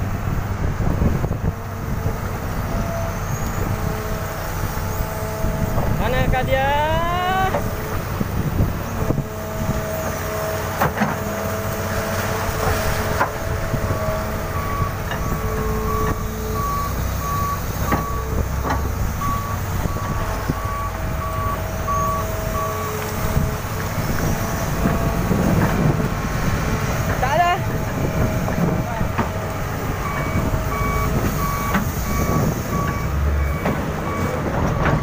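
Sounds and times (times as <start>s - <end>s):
excavator diesel engine running: 0.0s - 35.0s
back-up alarm beeping: 14.0s - 23.4s, 27.2s - 35.0s.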